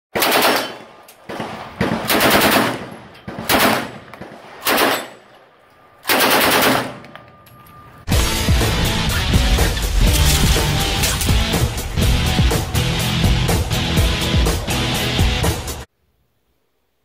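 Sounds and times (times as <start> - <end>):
automatic gunfire bursts: 0.1 - 5.2, 6.1 - 7.0
music: 8.1 - 15.9.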